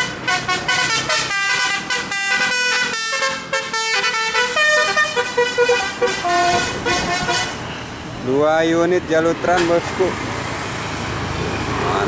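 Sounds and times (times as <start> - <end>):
multi-tone musical bus horn: 0.0 - 7.7.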